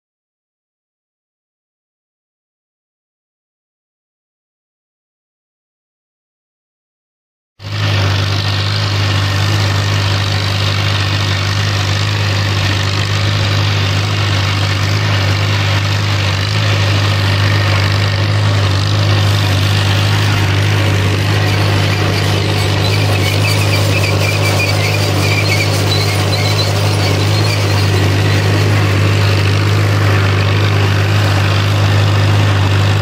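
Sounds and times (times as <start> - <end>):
tractor engine running under load: 7.6 - 33.0.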